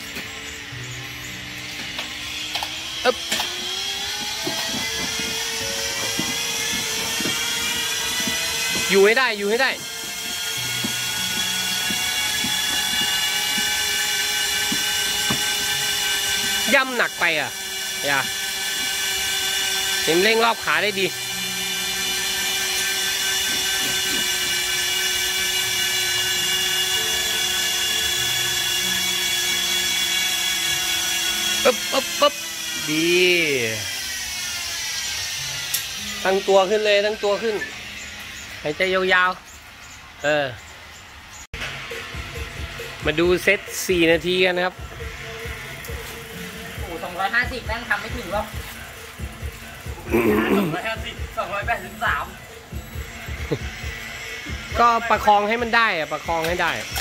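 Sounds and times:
bicycle trainer whining: 0.0s - 57.0s.

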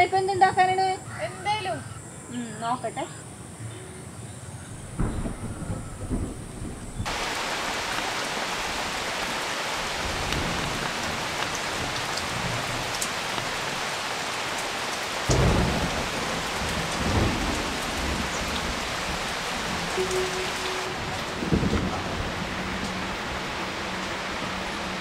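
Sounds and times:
low rumble of thunder: 4.6s - 13.9s, 15.2s - 25.0s
rain on foliage and roofs: 4.7s - 25.0s.

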